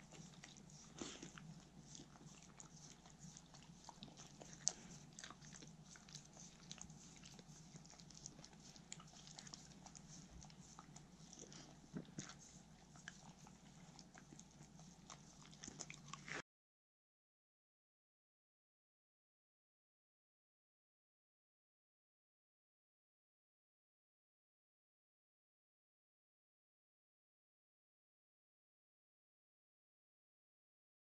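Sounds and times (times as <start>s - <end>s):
dogs crunching and chewing apple: 0.0s - 16.4s
dogs licking hands: 0.0s - 16.4s.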